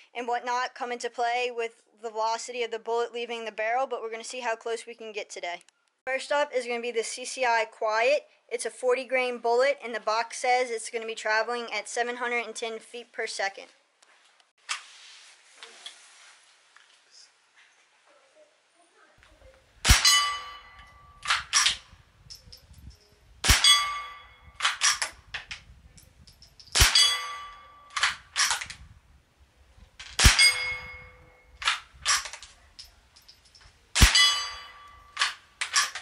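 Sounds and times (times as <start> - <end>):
rifle shots: 19.8 - 21.8, 23.4 - 25.2, 26.7 - 28.7, 30.1 - 31.0, 34.0 - 36.0
ringing clang from steel target: 19.9 - 21.8, 23.4 - 25.1, 26.4 - 28.3, 30.2 - 32.2, 34.0 - 35.5
quick clicks: 27.9 - 28.8.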